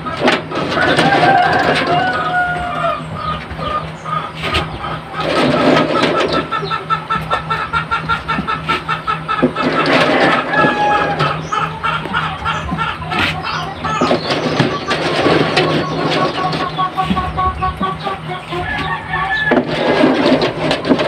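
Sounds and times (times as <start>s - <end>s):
chickens clucking: 0.0s - 21.0s.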